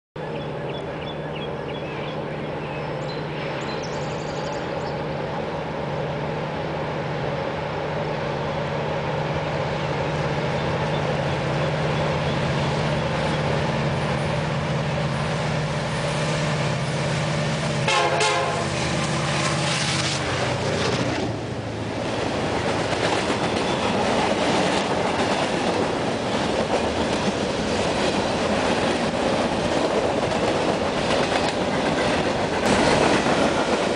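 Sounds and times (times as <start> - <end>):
diesel locomotive engine drone: 0.2 - 33.9
freight cars wheel and rail clatter: 9.4 - 33.9
train horn: 17.8 - 19.0.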